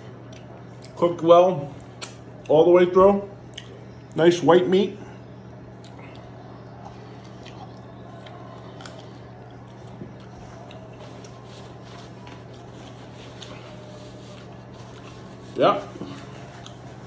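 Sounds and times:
steady low hum: 0.0 - 17.0
man chewing: 0.1 - 1.0, 5.7 - 17.0
paper towel rustling: 10.5 - 17.0.

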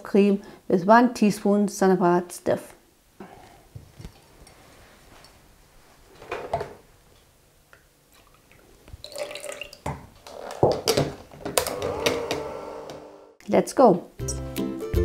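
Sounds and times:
liquid dripping: 8.1 - 10.0.

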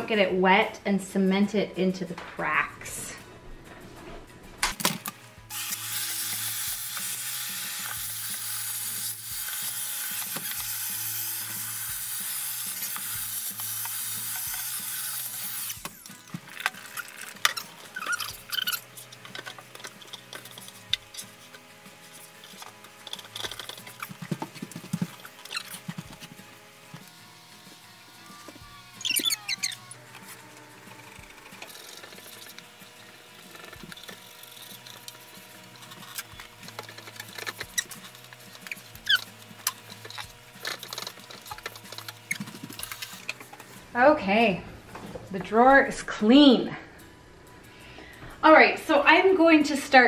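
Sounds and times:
handheld vacuum cleaner running: 5.5 - 43.8.

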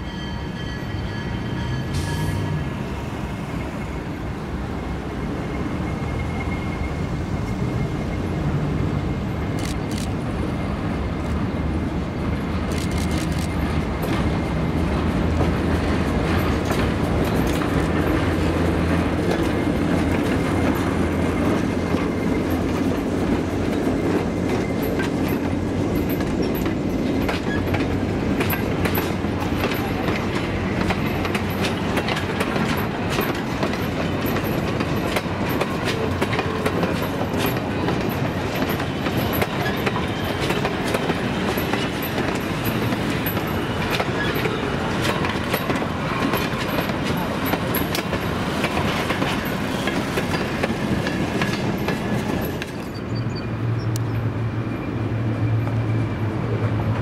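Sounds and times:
diesel locomotive engine drone: 0.0 - 57.0
train wheels clicking over rail joints: 12.5 - 53.1.

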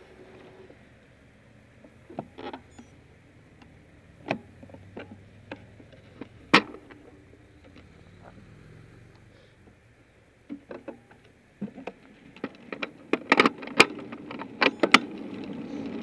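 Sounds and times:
sharp clicks and knocks: 1.8 - 8.4, 10.4 - 16.0.

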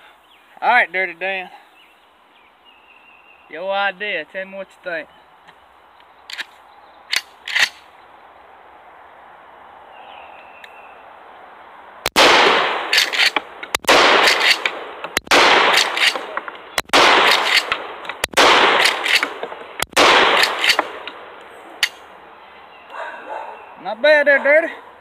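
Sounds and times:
shotgun blasts with echo: 12.1 - 21.0.

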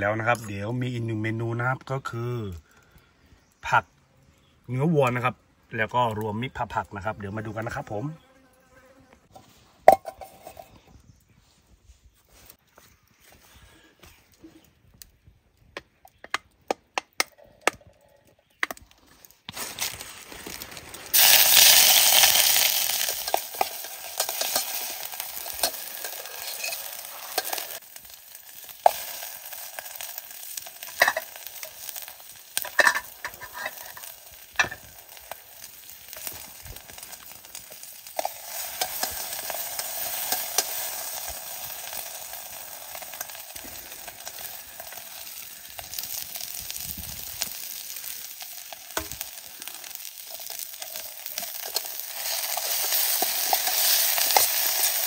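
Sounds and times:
clinks and scrapes of stirring: 9.4 - 10.9, 22.6 - 27.8, 30.8 - 31.8, 32.6 - 34.9, 49.0 - 55.0
food sizzling in a hot pan: 20.2 - 55.0.

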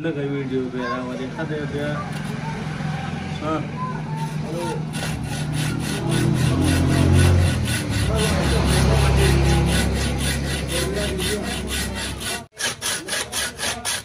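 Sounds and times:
hand saw cutting wood: 1.7 - 2.5, 4.1 - 14.0.

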